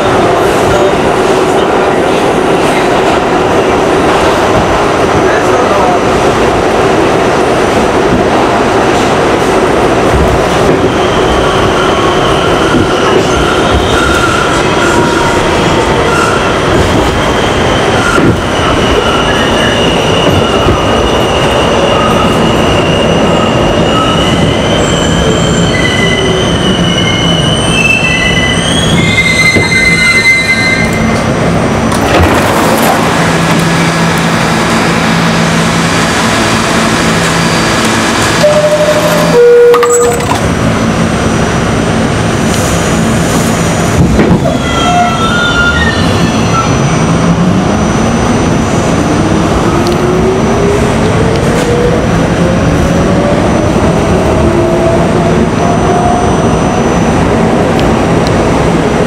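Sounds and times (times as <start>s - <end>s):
subway train rumbling in tunnel: 0.0s - 59.0s
high-pitched wheel squeal: 17.2s - 31.2s, 44.4s - 47.0s.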